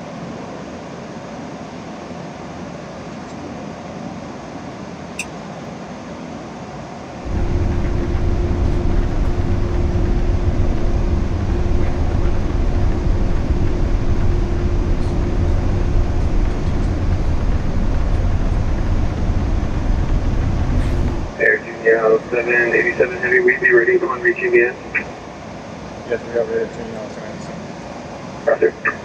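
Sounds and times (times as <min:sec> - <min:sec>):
jet engines idling rumble: 0:00.0 - 0:29.0
held hum: 0:07.2 - 0:25.1.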